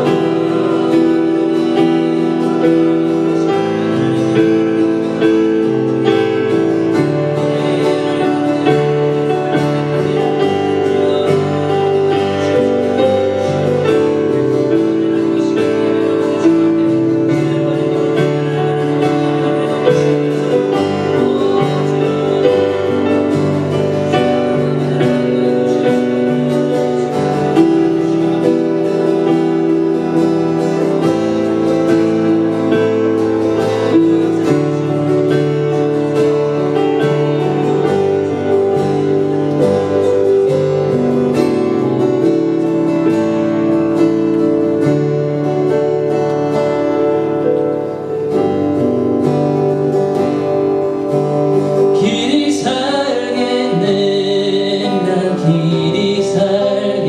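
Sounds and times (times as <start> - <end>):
acoustic guitar strumming: 0.0 - 57.0
sustained keyboard chords: 0.0 - 57.0.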